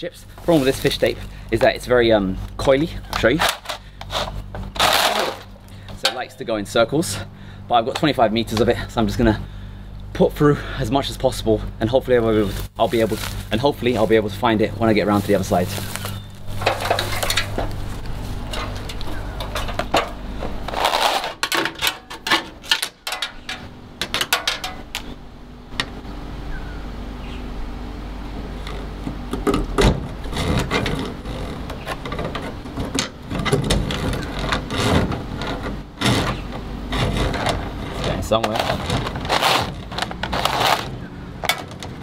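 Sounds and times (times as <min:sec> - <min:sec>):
fish tape clicking and scraping: 0:20.7 - 0:21.6, 0:30.2 - 0:42.0.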